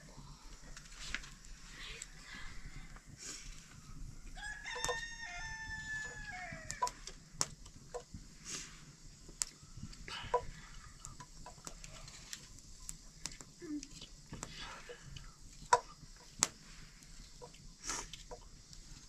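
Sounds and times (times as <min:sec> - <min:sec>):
rooster crowing: 0:04.2 - 0:07.0.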